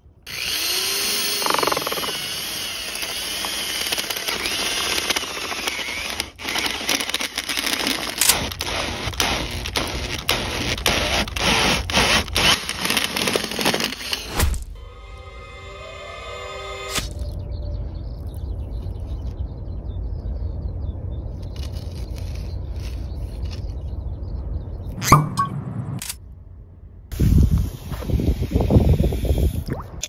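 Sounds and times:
electric drill motor whine: 0.3 - 17.0
auger crackling through soil: 3.0 - 14.6.

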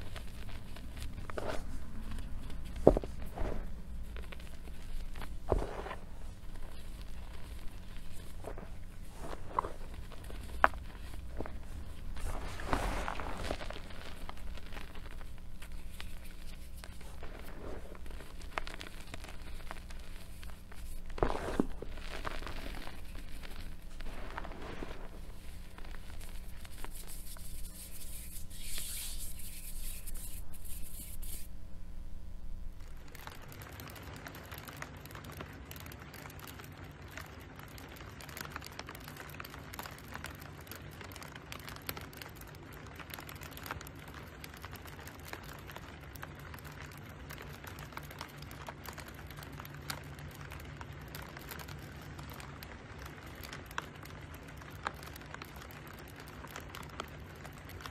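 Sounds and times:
hands crunching chalk: 0.0 - 31.5
faint even crackle: 0.0 - 31.6, 32.4 - 57.9.

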